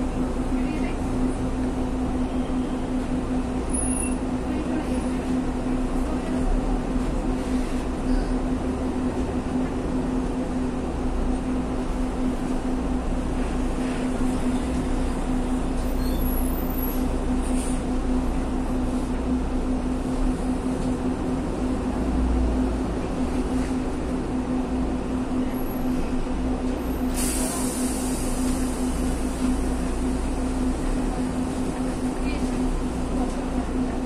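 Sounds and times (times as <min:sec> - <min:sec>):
bus engine rumbling: 0:00.0 - 0:34.0.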